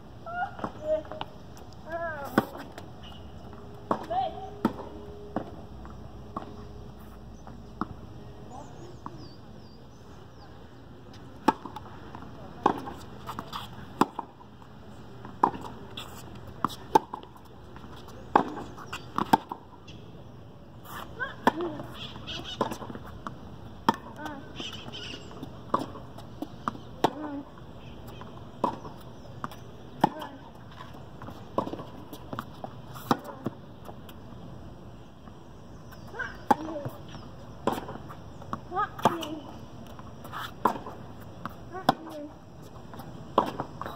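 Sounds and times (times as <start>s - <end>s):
tennis ball bouncing on court: 0.6s - 6.7s, 7.4s - 8.0s, 11.1s - 20.0s, 20.9s - 34.2s, 35.2s - 43.9s
tennis ball struck by racket: 11.4s - 14.4s, 15.2s - 19.7s, 20.9s - 27.4s, 28.2s - 30.5s, 31.2s - 33.6s, 36.2s - 42.2s, 43.3s - 43.9s.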